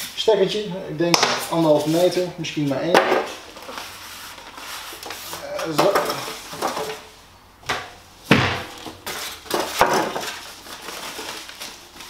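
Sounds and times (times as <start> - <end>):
plastic wrapping rustling: 1.4 - 7.1, 8.6 - 12.0
foam packing pieces pulled off: 9.0 - 12.0.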